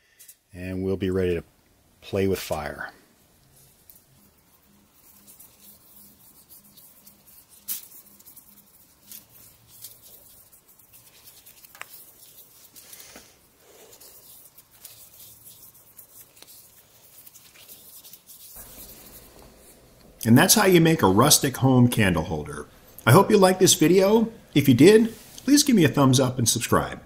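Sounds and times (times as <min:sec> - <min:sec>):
gloved hands rubbing wood: 0:03.6 - 0:26.9.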